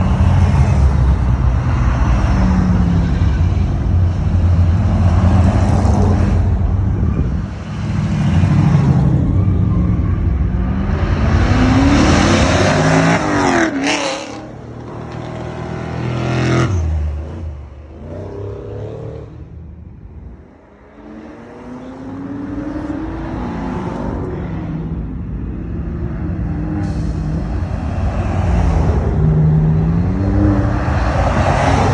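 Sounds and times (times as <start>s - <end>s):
cars accelerating hard: 7.9s - 19.5s, 20.6s - 31.9s.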